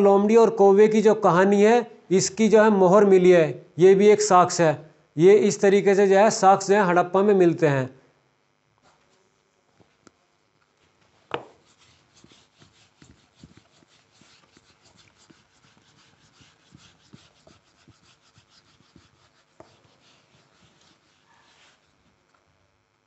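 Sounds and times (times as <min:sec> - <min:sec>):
eraser scrubbing whiteboard: 0:11.3 - 0:22.1.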